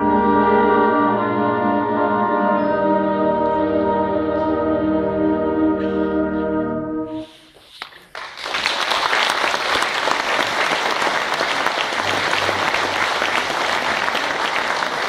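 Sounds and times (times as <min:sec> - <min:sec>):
scattered claps: 0:07.6 - 0:15.0
audience applause: 0:07.8 - 0:15.0
concert band held chord: 0:11.9 - 0:15.0.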